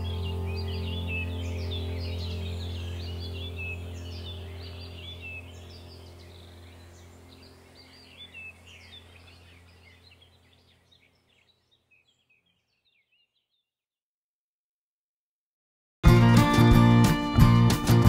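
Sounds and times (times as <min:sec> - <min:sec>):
steady low hum: 0:00.0 - 0:11.5
birds chirping: 0:00.0 - 0:13.7.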